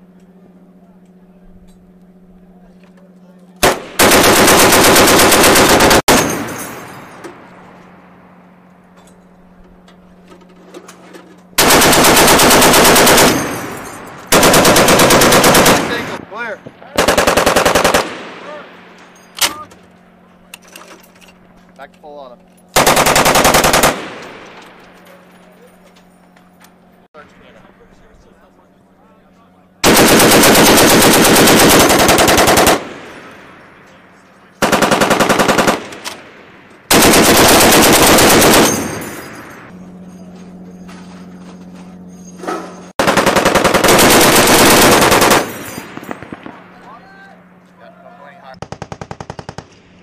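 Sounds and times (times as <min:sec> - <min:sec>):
steady low hum: 0:00.0 - 0:50.0
heavy machine gun bursts: 0:03.6 - 0:07.5, 0:11.6 - 0:16.3, 0:16.9 - 0:19.7, 0:22.7 - 0:25.0, 0:29.8 - 0:39.7, 0:42.4 - 0:47.6.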